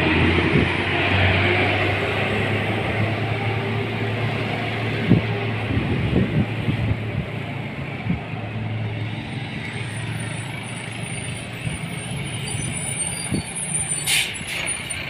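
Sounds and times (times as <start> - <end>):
air brakes hissing: 13.3 - 15.0.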